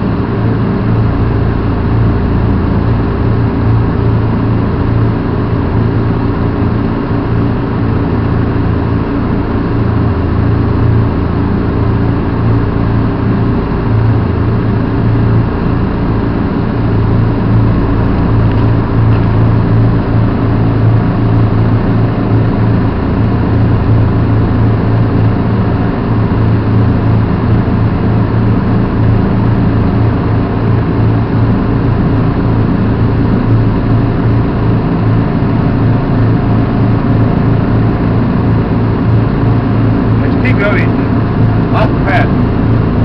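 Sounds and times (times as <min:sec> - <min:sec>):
tracked vehicle engine droning: 0:15.2 - 0:43.0.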